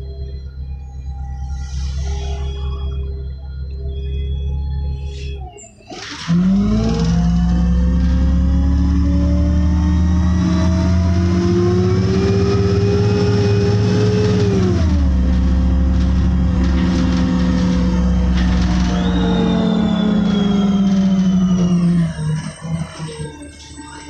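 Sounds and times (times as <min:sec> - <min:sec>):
drivetrain whine: 0:00.0 - 0:24.0
bus engine hum: 0:06.0 - 0:24.0.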